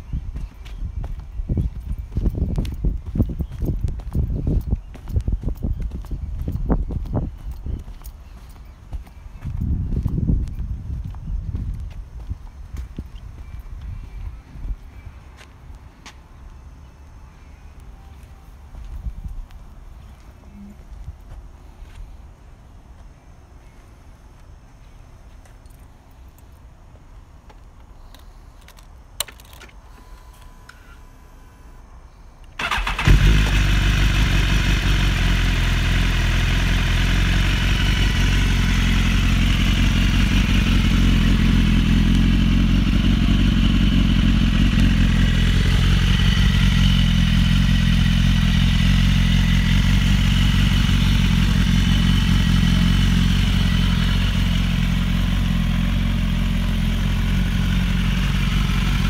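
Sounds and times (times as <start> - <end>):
motorcycle engine idling: 32.6 - 59.0
motorcycle engine starting: 32.6 - 59.0.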